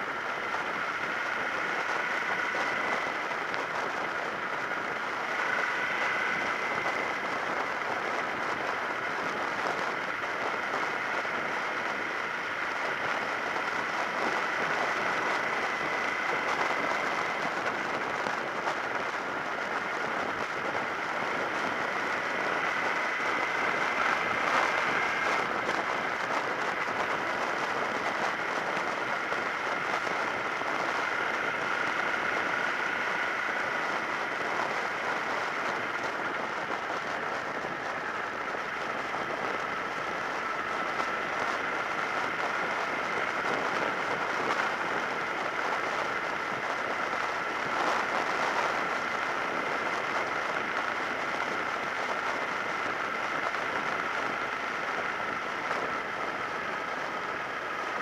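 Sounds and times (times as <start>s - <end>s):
motorcycle wind rush: 0.0s - 58.0s.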